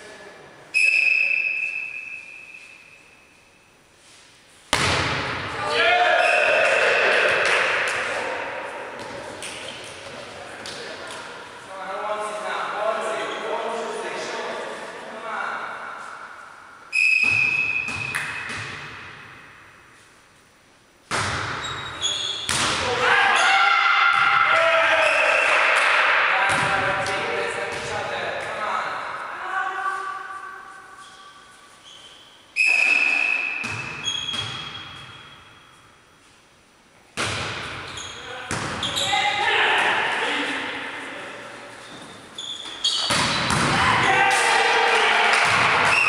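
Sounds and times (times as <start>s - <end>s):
referee's whistle blast: 0.7s - 3.0s, 16.9s - 18.1s
referee's whistle: 0.7s - 3.2s, 6.2s - 6.6s, 16.9s - 18.5s, 32.6s - 35.4s.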